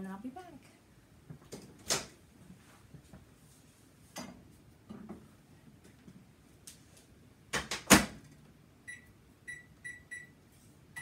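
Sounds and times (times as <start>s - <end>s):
keypad beeps: 8.9s - 10.3s.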